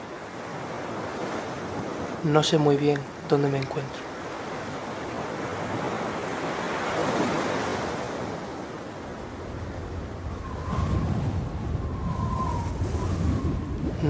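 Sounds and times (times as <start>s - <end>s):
small waves washing on shore: 0.0s - 14.0s
low wind rumble: 4.0s - 14.0s.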